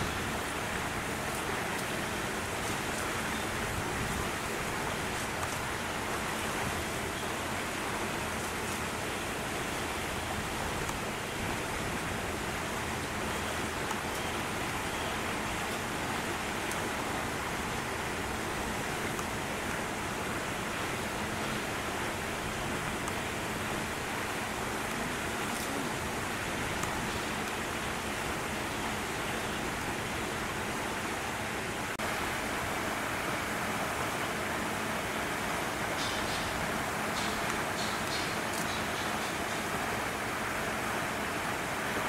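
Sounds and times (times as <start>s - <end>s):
outdoor background hiss: 0.0s - 42.0s.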